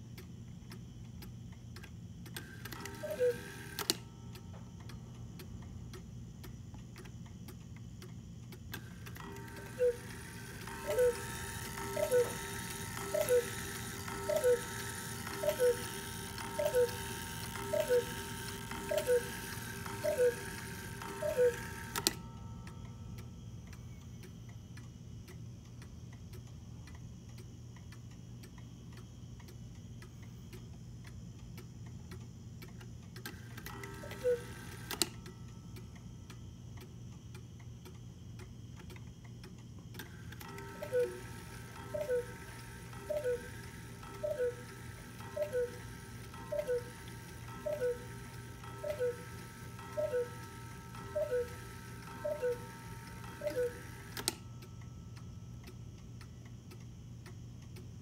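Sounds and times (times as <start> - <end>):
clock mechanism click: 0.0 - 58.0
clock ticking: 0.0 - 58.0
cuckoo clock calls: 2.4 - 4.4, 8.7 - 24.3, 33.2 - 35.9, 40.0 - 55.0.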